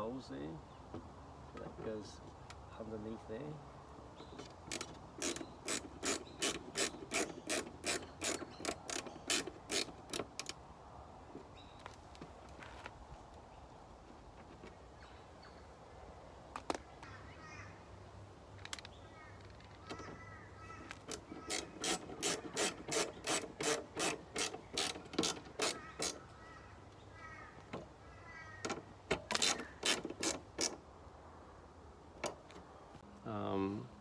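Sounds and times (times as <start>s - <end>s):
squeaky scraping: 4.2s - 10.6s, 18.6s - 30.8s
ratcheting screwdriver clicking: 4.4s - 10.6s, 20.9s - 26.2s.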